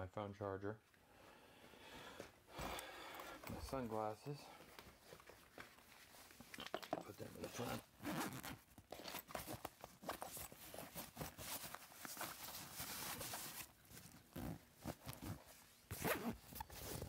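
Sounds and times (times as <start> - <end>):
fabric bag rustling: 7.1 - 17.0
zipper pulled: 7.4 - 17.0.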